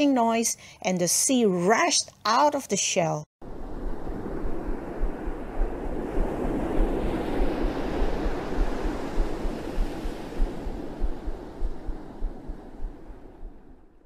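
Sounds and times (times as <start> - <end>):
ocean waves surging: 3.4 - 13.9
low rumble: 3.4 - 14.0.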